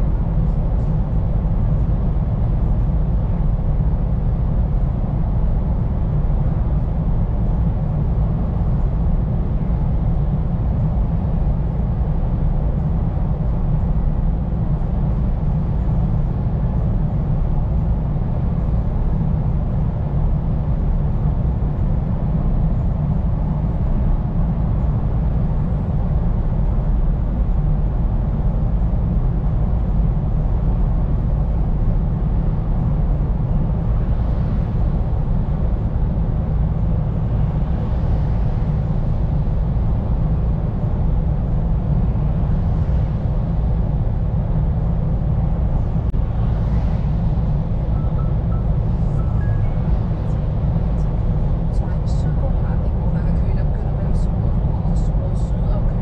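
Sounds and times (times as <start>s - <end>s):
road noise: 8.3s - 56.0s
truck engine drone: 10.7s - 56.0s.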